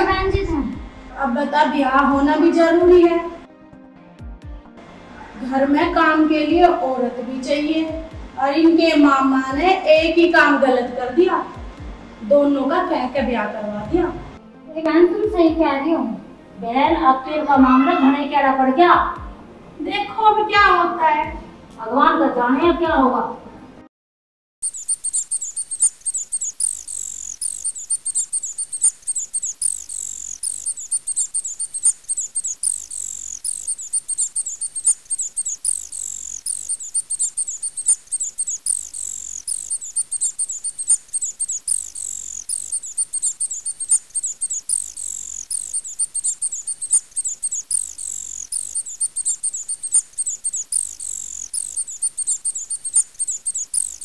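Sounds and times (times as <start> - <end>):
high-pitched chirping: 24.6 - 54.0.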